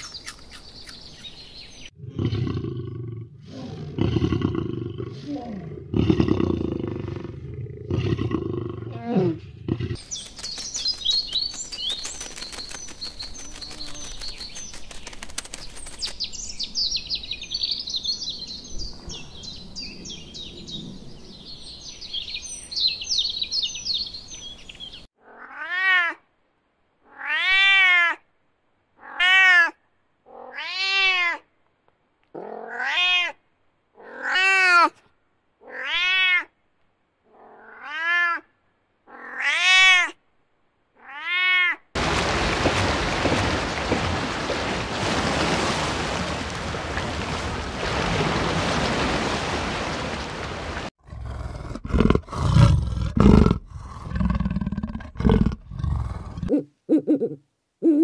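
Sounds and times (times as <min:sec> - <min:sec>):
small birds chirping: 0:00.0 - 0:02.0, 0:10.0 - 0:25.1
cat meowing: 0:25.2 - 0:26.2, 0:27.1 - 0:28.2, 0:29.0 - 0:31.4, 0:32.6 - 0:33.4, 0:35.6 - 0:36.5, 0:37.5 - 0:38.5, 0:39.1 - 0:40.2, 0:41.0 - 0:41.8.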